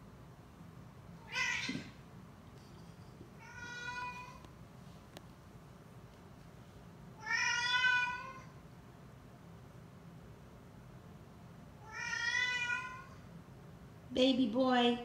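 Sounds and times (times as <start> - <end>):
cat meowing: 1.2 - 2.0, 3.4 - 4.4, 7.2 - 8.5, 11.8 - 13.2.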